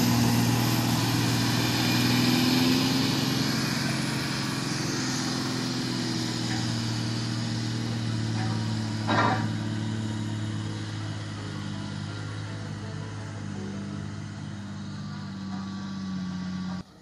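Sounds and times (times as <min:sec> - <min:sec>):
diesel truck engine driving: 0:00.0 - 0:17.0.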